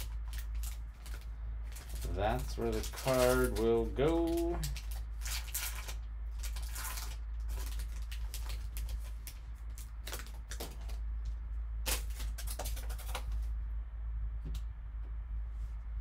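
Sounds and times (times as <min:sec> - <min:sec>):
cards being handled: 0:00.0 - 0:11.0, 0:11.8 - 0:13.5
foil wrapper crinkling: 0:00.0 - 0:11.0, 0:11.8 - 0:13.5
steady low hum: 0:00.0 - 0:16.0.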